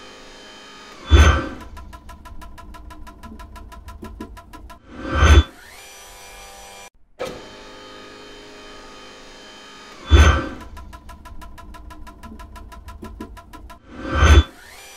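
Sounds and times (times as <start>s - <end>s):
rapid ticks: 1.7s - 4.8s, 10.7s - 13.8s.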